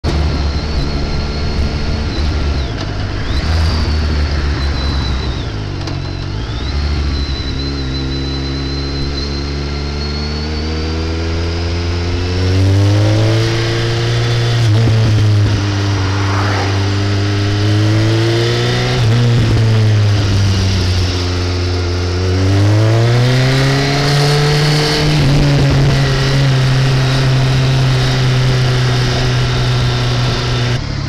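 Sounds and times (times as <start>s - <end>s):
wind rumble on microphone: 14.6s - 21.1s.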